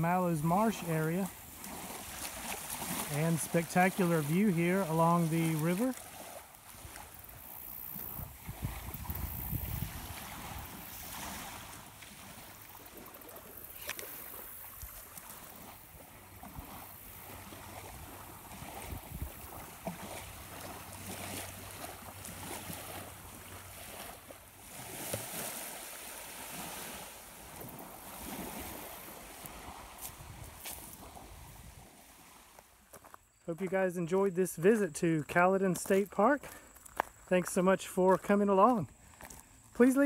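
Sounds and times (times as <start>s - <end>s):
wind on microphone: 6.8s - 11.8s, 17.4s - 20.6s, 26.5s - 32.4s.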